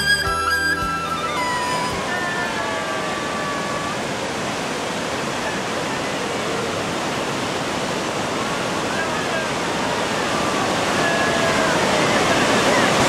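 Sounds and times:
roar of rushing water: 2.0 - 13.0.

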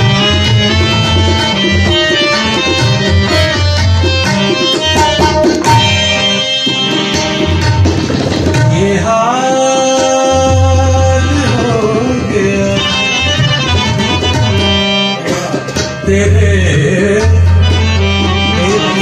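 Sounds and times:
harmonium playing: 0.0 - 19.0
tabla drumming: 0.0 - 19.0
man singing long notes: 8.7 - 13.9, 15.1 - 19.0.

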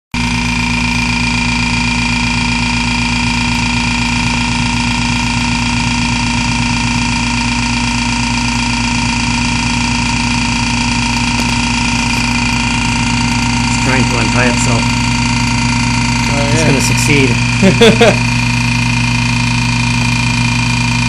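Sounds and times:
vacuum pump running: 0.2 - 21.0.

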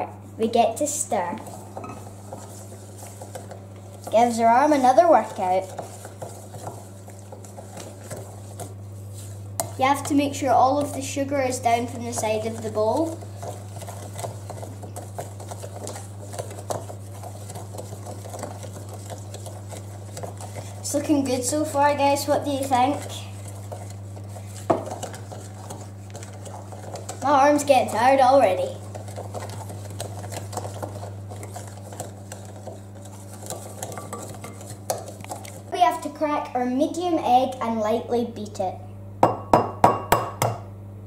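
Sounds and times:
steady low hum: 0.0 - 41.0
wooden spoon stirring in glass bowl: 0.5 - 36.2
spoon scraping glass bowl: 28.9 - 35.6.

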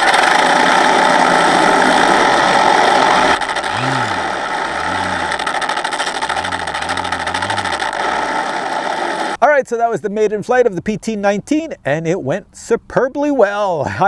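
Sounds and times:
electric motor spinning propeller: 0.0 - 9.4
simulated engine sound from speakers: 0.0 - 9.4
simulated machine-gun sound: 3.3 - 9.2.

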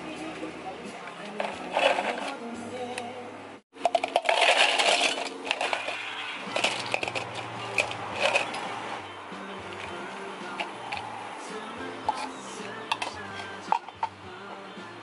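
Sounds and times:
ice cubes clinking into plastic cup: 3.8 - 8.6.

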